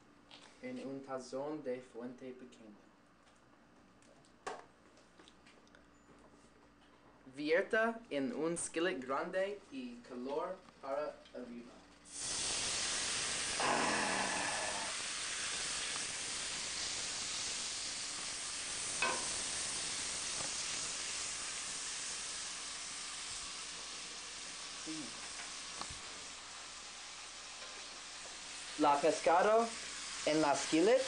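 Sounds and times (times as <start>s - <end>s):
liquid sizzling in a skillet: 12.1s - 31.0s.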